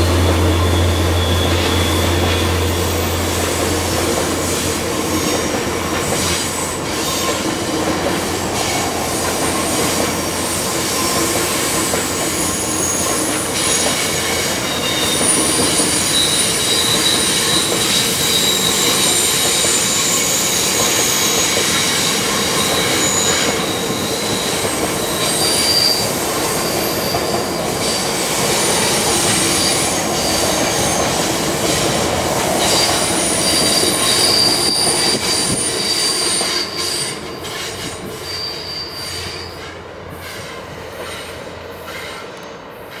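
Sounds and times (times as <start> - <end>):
high wheel squeal: 0.0 - 43.0
train wheels rumbling on rails: 0.0 - 43.0.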